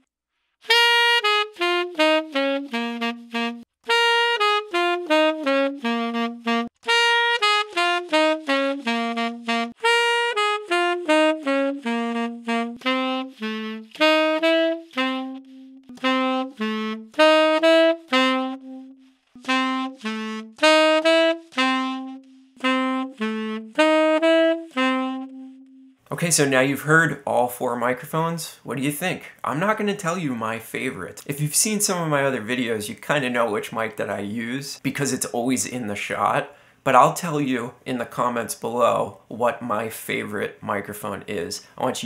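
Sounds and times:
tenor saxophone playing: 0.6s - 27.1s.

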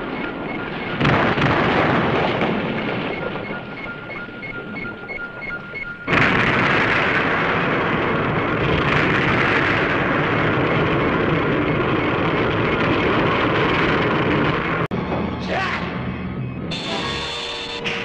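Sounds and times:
explosion roar: 0.8s - 3.8s, 6.1s - 15.6s
repeating electronic beep: 2.7s - 6.7s, 16.0s - 18.0s.

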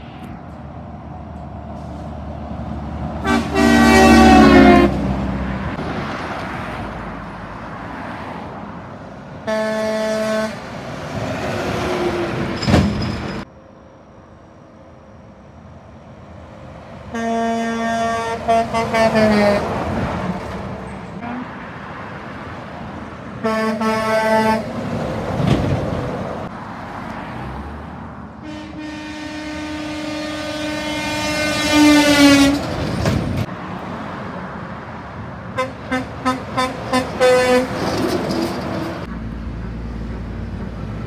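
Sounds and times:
truck engines and tyres rumbling: 0.0s - 41.0s
truck horn blasts: 3.2s - 5.1s, 9.4s - 10.6s, 17.1s - 19.8s, 23.4s - 24.7s, 28.4s - 32.7s, 35.6s - 37.8s.

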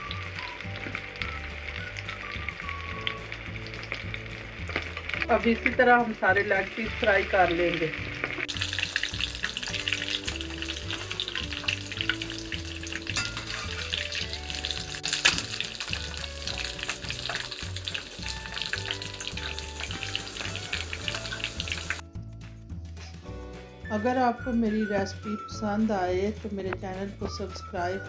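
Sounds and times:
chicken deep-frying in oil: 0.0s - 22.0s.

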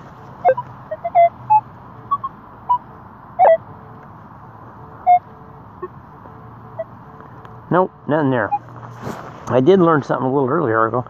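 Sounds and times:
pinpointer probe beeping: 0.0s - 4.0s, 4.8s - 7.7s.

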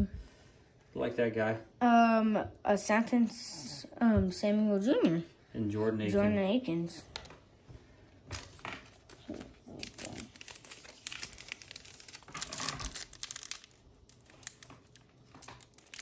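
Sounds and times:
foil pack crinkling and tearing: 8.4s - 16.0s.

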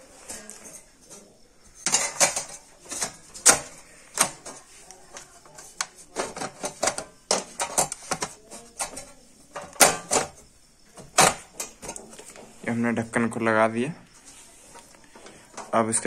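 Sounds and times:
metal lid clicks and knocks: 6.2s - 9.0s.

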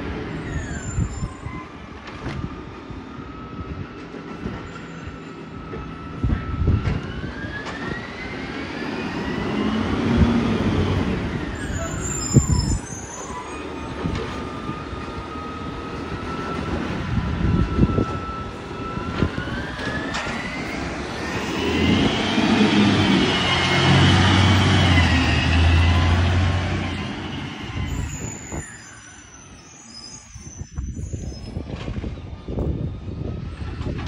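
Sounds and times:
garbage truck diesel engine: 7.6s - 28.4s.

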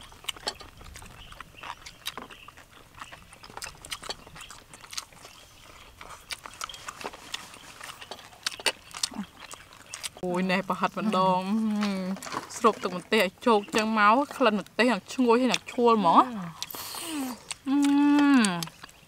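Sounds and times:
people chewing food: 0.0s - 19.0s.

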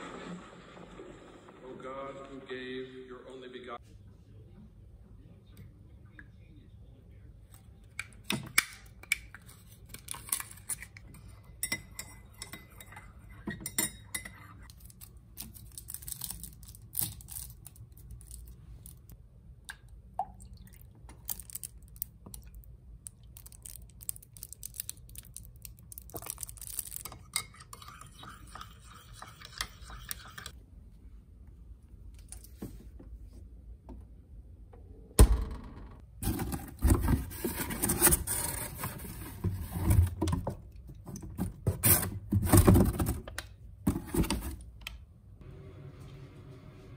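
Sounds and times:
spoon clinking in ceramic mug: 11.5s - 14.7s.

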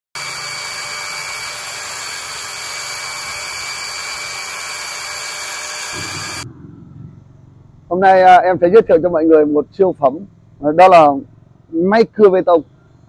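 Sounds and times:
concrete chainsaw whine and grinding: 0.2s - 6.5s.

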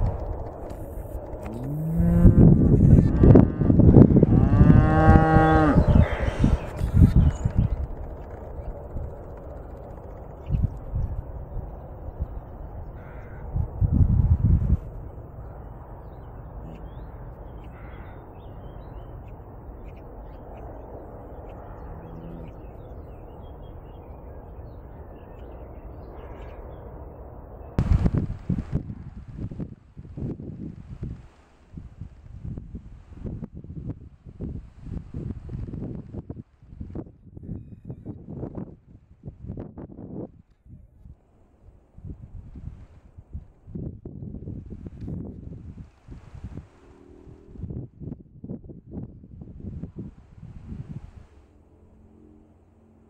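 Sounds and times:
wind rumble on microphone: 0.0s - 53.0s
cattle mooing: 1.4s - 7.0s, 21.7s - 22.8s.

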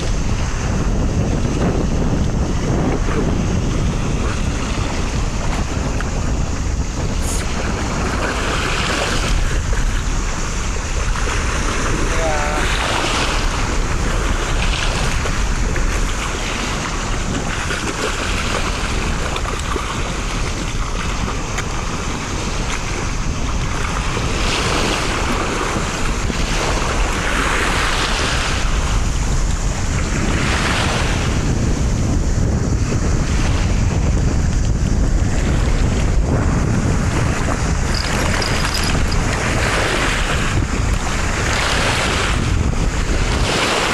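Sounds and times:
waves washing on pebbles: 0.0s - 32.0s, 32.8s - 43.9s
wind buffeting microphone: 0.0s - 43.9s.

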